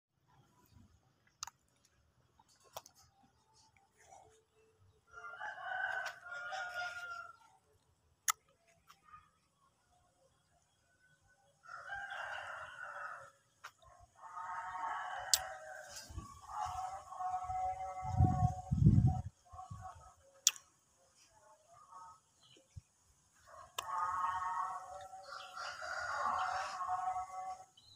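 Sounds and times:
rooster crowing: 0:05.1 - 0:07.4, 0:11.6 - 0:13.4, 0:14.2 - 0:18.6, 0:23.6 - 0:27.7.

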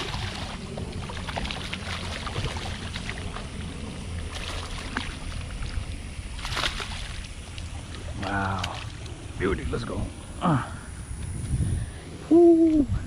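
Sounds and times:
low rumble: 0:00.0 - 0:06.4
fish splashing in water: 0:00.0 - 0:09.4.

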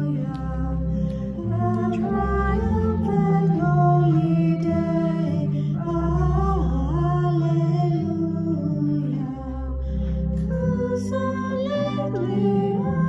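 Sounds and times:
congregation singing a hymn: 0:00.0 - 0:09.8
held chords and bass notes: 0:00.0 - 0:13.0.

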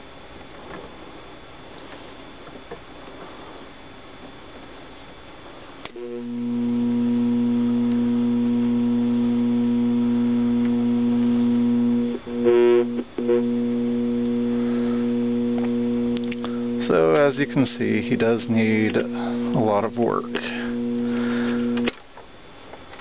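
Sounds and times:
loud electrical buzz: 0:05.8 - 0:22.0.

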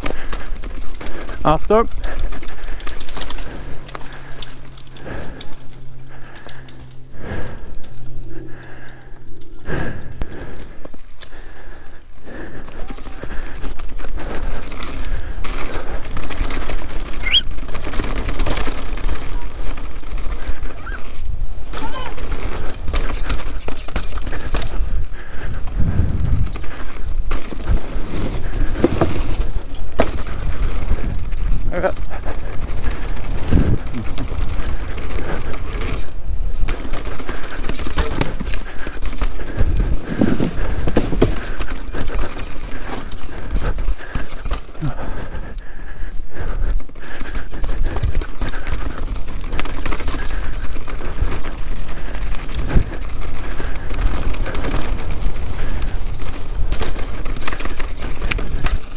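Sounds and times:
bike rattling over ground: 0:00.0 - 0:58.9
bike tyres crunching on dirt: 0:00.0 - 0:58.9
constant rumble: 0:00.0 - 0:58.9.

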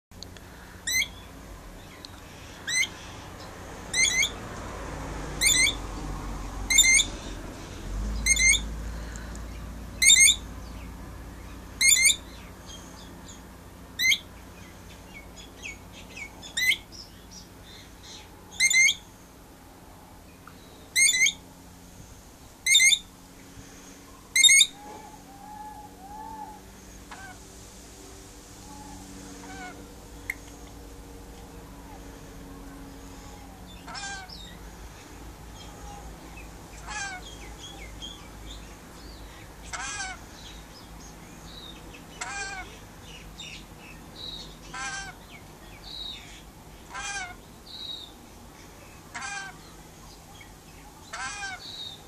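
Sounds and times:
faint bird chirps: 0:00.8 - 0:03.2, 0:09.5 - 0:10.8
parrot screeching: 0:00.9 - 0:01.2, 0:02.6 - 0:02.9, 0:03.9 - 0:04.3, 0:05.4 - 0:05.8, 0:06.7 - 0:07.1, 0:08.3 - 0:08.6, 0:10.0 - 0:10.4, 0:11.8 - 0:12.2, 0:14.0 - 0:14.2, 0:18.6 - 0:19.0, 0:21.0 - 0:21.4, 0:22.7 - 0:23.0, 0:24.4 - 0:27.4, 0:28.7 - 0:29.8, 0:33.3 - 0:34.4, 0:36.8 - 0:37.4, 0:39.7 - 0:40.2, 0:42.2 - 0:42.7, 0:44.7 - 0:45.2, 0:46.9 - 0:47.4, 0:49.1 - 0:49.6, 0:51.1 - 0:51.7.

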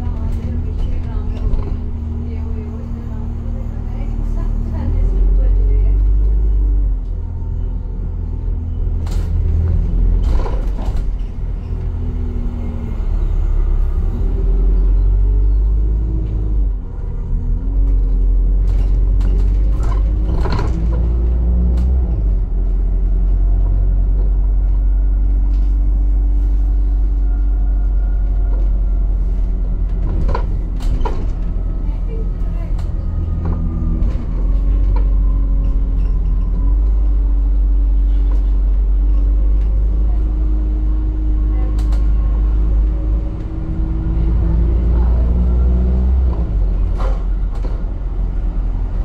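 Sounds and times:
bus engine rumble: 0:00.0 - 0:49.0
rattles and knocks: 0:29.6 - 0:31.7.

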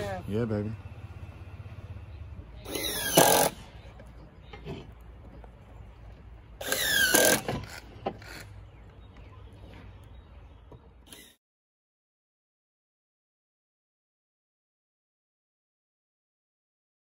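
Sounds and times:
power tool motor whine: 0:02.7 - 0:03.7, 0:06.6 - 0:08.4.

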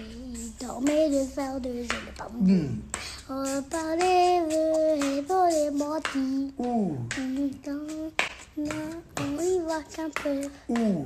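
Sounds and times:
child singing: 0:00.0 - 0:11.0
child breathing: 0:02.4 - 0:03.3.

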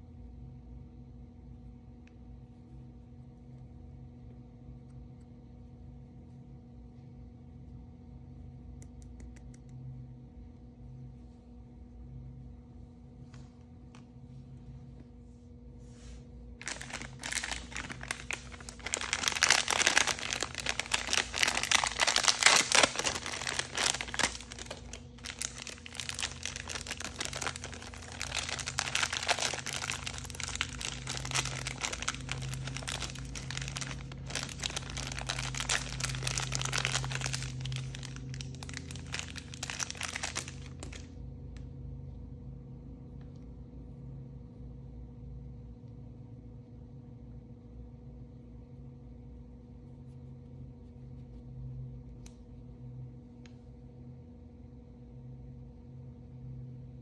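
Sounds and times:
plastic wrapper crinkling: 0:16.6 - 0:41.2.

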